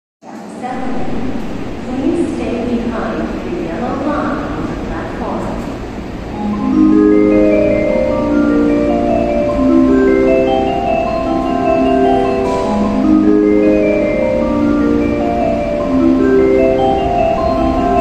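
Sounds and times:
chime-like station melody: 6.3s - 18.0s.

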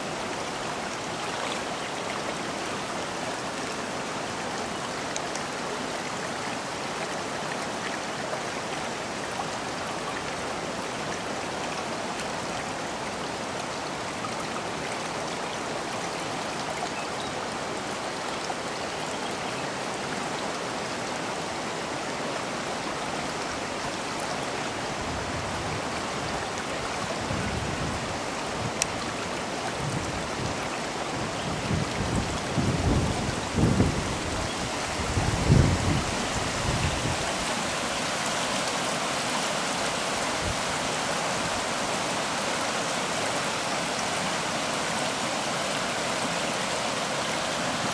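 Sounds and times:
floodwater rushing: 0.0s - 47.9s.

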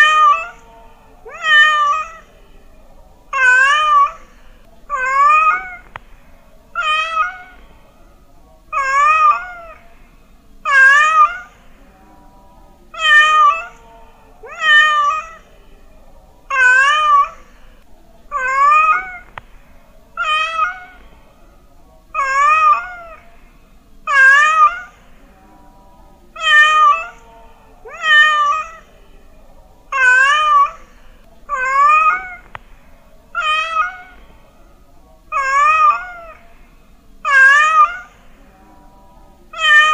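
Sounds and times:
cat meowing: 0.0s - 0.6s, 1.3s - 2.3s, 3.3s - 4.3s, 4.9s - 6.0s, 6.8s - 7.6s, 8.7s - 9.8s, 10.7s - 11.6s, 13.0s - 13.8s, 14.4s - 15.5s, 16.5s - 17.4s, 18.3s - 19.4s, 20.2s - 21.0s, 22.2s - 23.2s, 24.1s - 25.0s, 26.4s - 27.2s, 27.8s - 28.9s, 29.9s - 32.6s, 33.4s - 34.3s, 35.3s - 36.4s, 37.2s - 38.2s, 39.5s - 39.9s.

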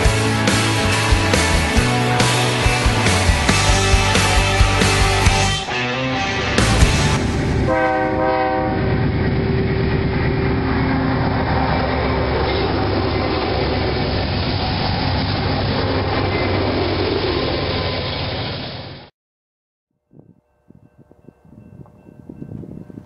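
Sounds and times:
freight train rumbling by: 0.0s - 19.1s
locomotive horn blast: 1.8s - 9.2s
train wheel noise on rails: 6.6s - 19.1s.

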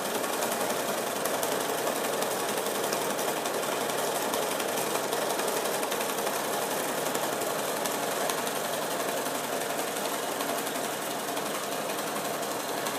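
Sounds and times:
sewing machine running: 0.0s - 12.9s.

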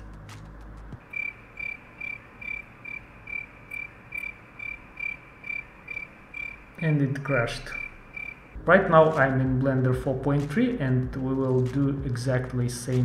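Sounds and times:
high-pitched chirp: 1.1s - 6.6s, 7.2s - 8.5s.

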